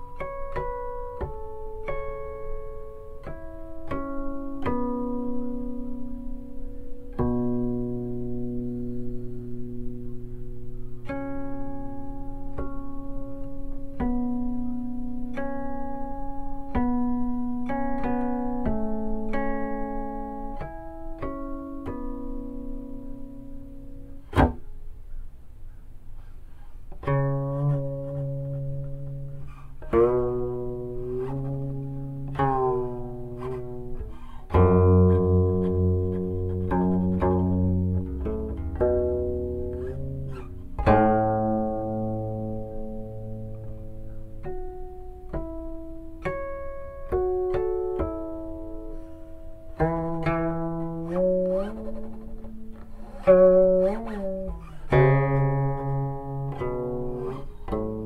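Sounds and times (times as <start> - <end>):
zither plucked notes: 0.0 - 58.0.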